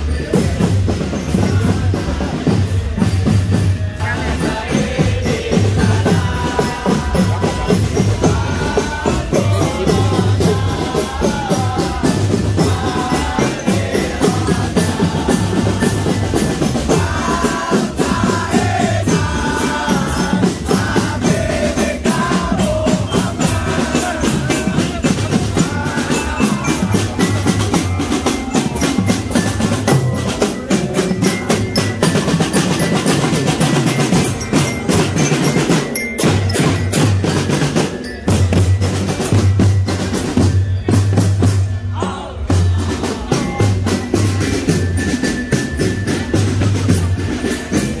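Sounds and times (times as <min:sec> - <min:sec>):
bass drum beat: 0:00.0 - 0:35.6
pitched melody: 0:00.0 - 0:48.0
rapid snare drum strokes: 0:00.0 - 0:48.0.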